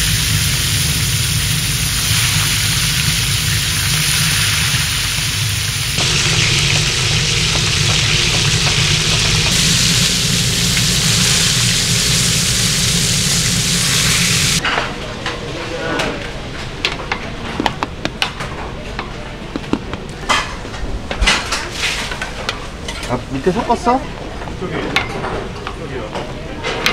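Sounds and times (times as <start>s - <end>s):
fish sizzling in a frying pan: 0.0s - 14.6s.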